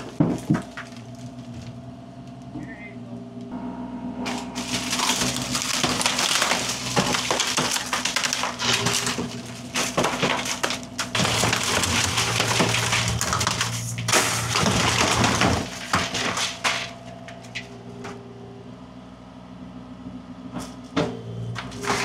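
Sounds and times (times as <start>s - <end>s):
wood splintering and breaking: 0.0s - 1.8s, 4.3s - 17.8s, 21.6s - 22.0s
engine running steadily: 0.0s - 22.0s.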